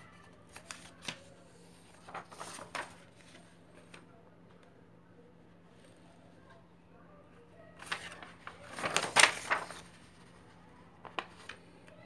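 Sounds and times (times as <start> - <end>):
rustling and scraping handling noise: 0.0 - 4.0, 7.8 - 11.7.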